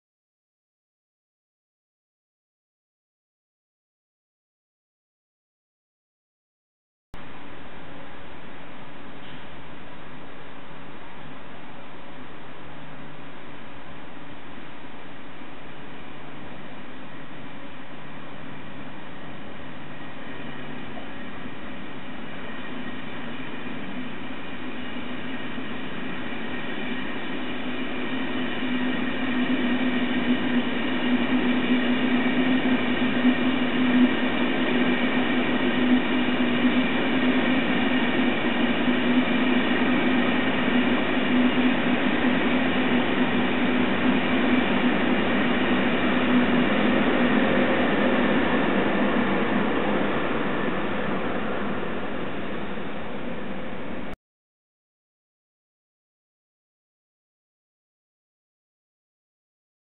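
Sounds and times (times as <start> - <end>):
passenger train rumbling past: 7.2 - 54.2.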